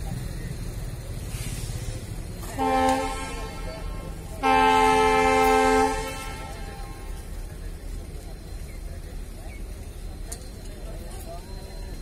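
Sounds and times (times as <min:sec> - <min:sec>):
locomotive horn blasts: 0:02.4 - 0:07.2.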